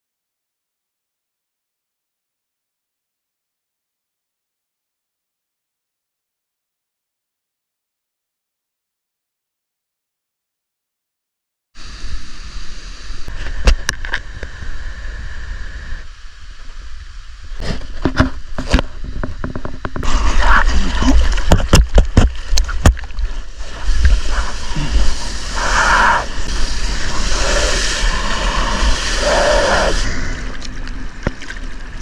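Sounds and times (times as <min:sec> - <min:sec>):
water rushing and splashing: 0:16.1 - 0:32.0
surf washing in: 0:20.0 - 0:32.0.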